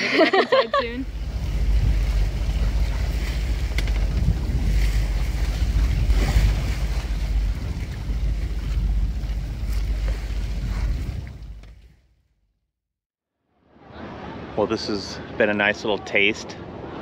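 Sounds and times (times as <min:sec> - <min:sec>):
waves washing: 0:00.0 - 0:12.0
wind buffeting microphone: 0:00.7 - 0:12.0.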